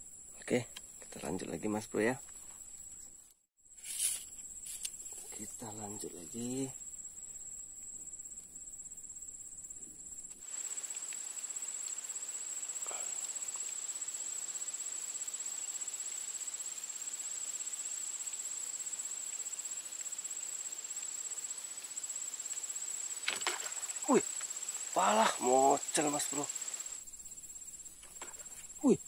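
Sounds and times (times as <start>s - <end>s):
insects trilling: 0.0s - 29.0s
soft hiss: 0.0s - 29.0s.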